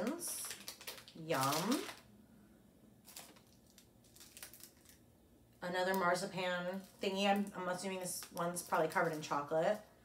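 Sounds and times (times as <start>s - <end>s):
wrapper rustling: 0.0s - 2.1s, 3.0s - 5.1s, 6.6s - 9.8s.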